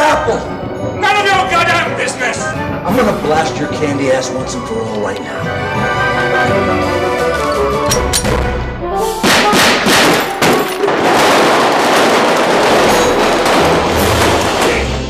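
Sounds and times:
film music: 0:00.0 - 0:15.0
gunfire over speakers: 0:09.2 - 0:15.0.

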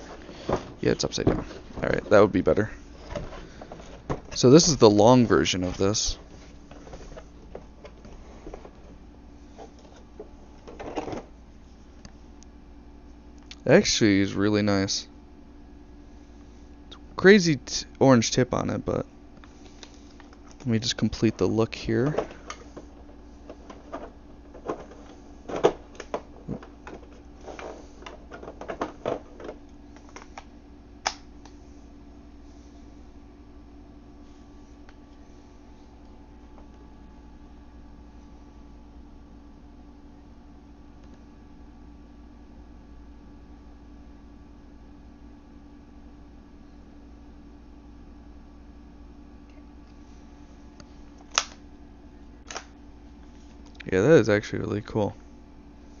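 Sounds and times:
airsoft rifle handling clicks and knocks: 0:51.2 - 0:51.6, 0:52.4 - 0:52.7.

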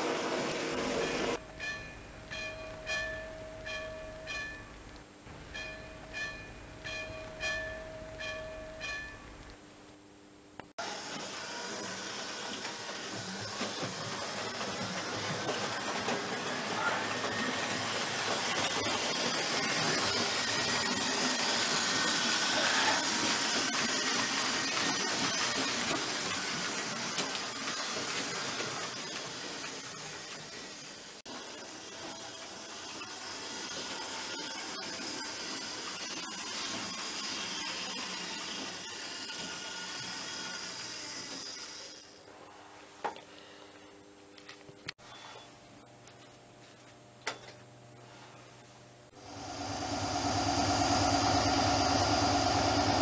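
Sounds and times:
model train rattling on metal track: 0:11.2 - 0:42.1.

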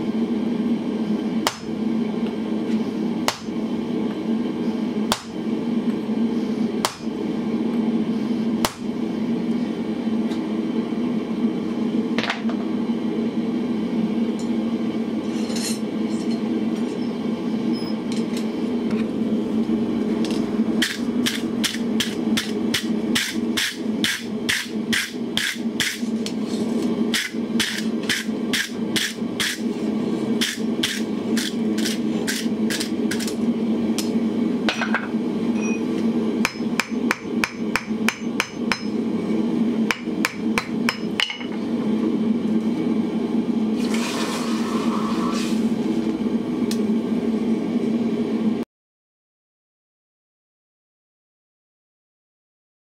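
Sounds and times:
steady low hum: 0:00.0 - 0:48.6
hammer striking anvil: 0:36.4 - 0:39.0, 0:39.9 - 0:41.6.

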